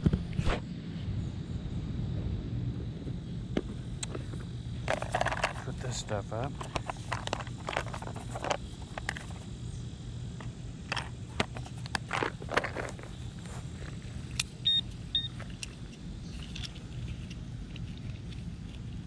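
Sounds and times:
low hum: 0.0 - 19.0
hands rustling small items: 4.9 - 9.4, 10.9 - 14.4.

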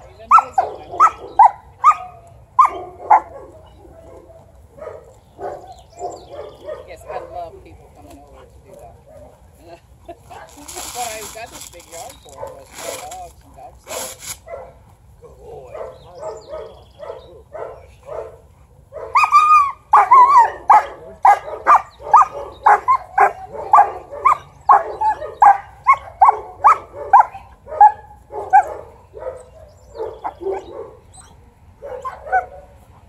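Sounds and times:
dog barking: 0.2 - 7.5, 14.4 - 14.8, 15.7 - 31.0, 31.8 - 32.8.

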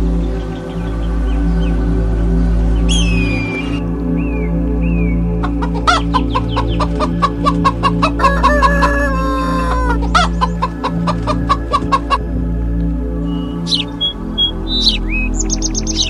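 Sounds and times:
background music: 0.0 - 16.0
chickens clucking: 5.4 - 12.2
rooster crowing: 7.5 - 11.6.

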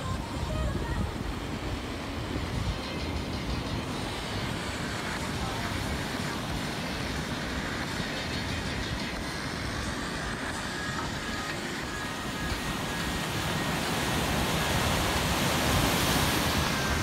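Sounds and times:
breaking surf hiss: 0.0 - 17.0
wind gusting over microphone: 0.0 - 17.0.

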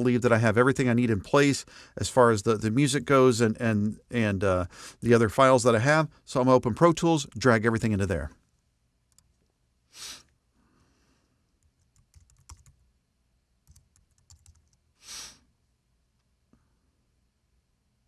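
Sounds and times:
breath-like hiss puffs: 9.9 - 11.2, 15.0 - 15.5
typing on computer keyboard: 11.6 - 12.8, 13.6 - 14.8.

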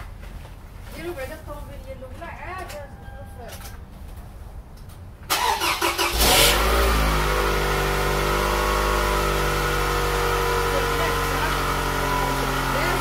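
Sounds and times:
car engine revving and idling: 5.6 - 13.0.

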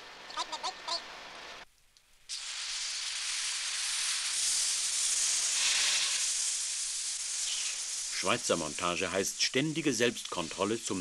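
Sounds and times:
hose spraying at high pressure: 2.3 - 11.0.

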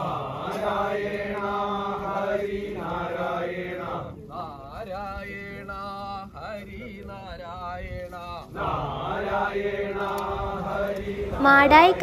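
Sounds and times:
voices chanting long notes: 0.0 - 5.7, 8.4 - 12.0.

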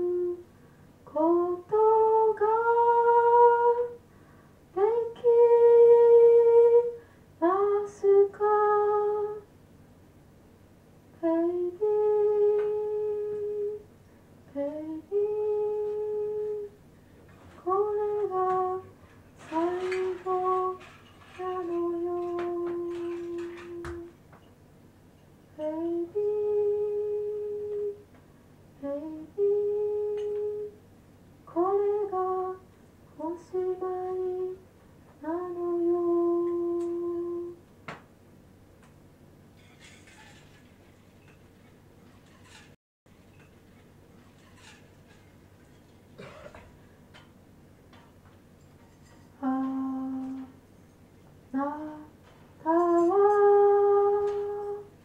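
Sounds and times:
person humming melody: 0.0 - 0.5, 1.1 - 4.0, 11.2 - 13.9, 14.5 - 16.8, 17.6 - 24.2, 25.6 - 28.1, 28.8 - 30.8, 35.2 - 37.6, 49.4 - 50.6, 51.5 - 55.0.

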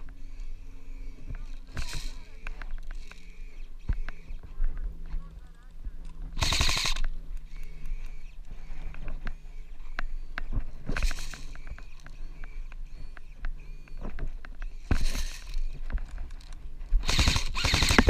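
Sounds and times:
airsoft gunfire: 1.7 - 2.5, 6.4 - 7.1, 14.9 - 15.5, 17.0 - 18.0.

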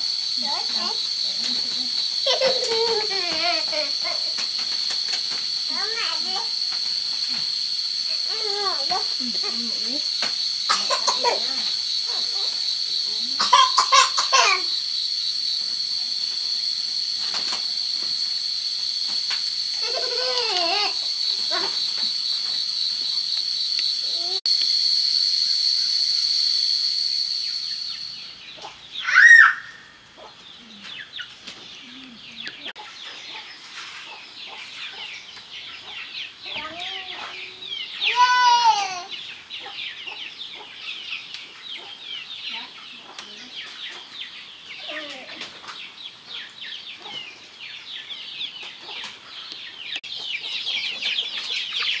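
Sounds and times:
high-pitched insect drone: 0.0 - 31.1, 34.0 - 45.4
chickens clucking: 28.5 - 29.0, 30.1 - 38.2, 39.1 - 52.0.

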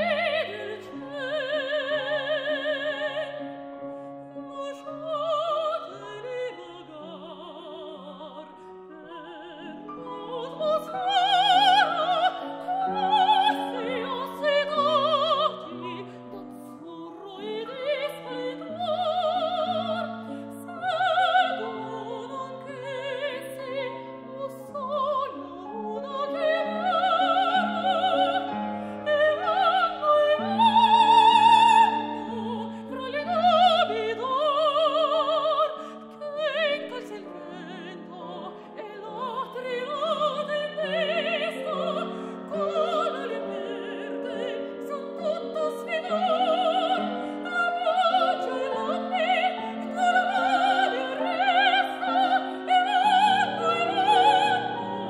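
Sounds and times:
grand piano: 0.0 - 55.0
soprano singing opera: 0.0 - 55.0.

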